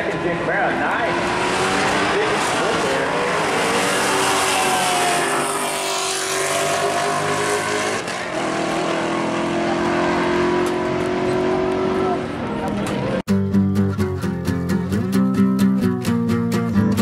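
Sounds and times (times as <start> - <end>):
drag cars accelerating at full throttle: 0.0 - 13.2.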